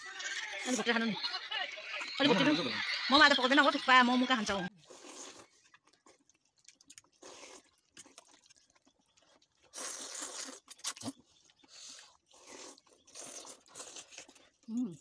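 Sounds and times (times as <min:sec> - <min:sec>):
chewing: 0:04.7 - 0:15.0
slurping noodles: 0:04.7 - 0:15.0.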